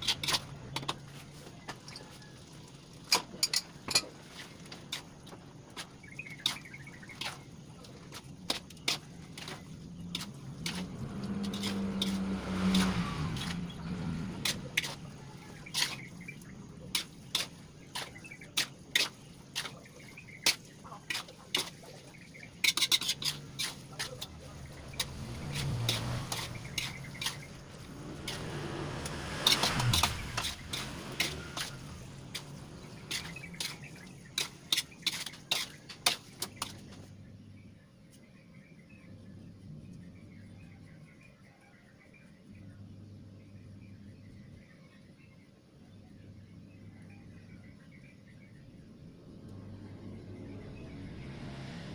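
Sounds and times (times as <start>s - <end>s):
metal spatula scraping a wok: 0.0s - 1.4s, 3.1s - 37.0s.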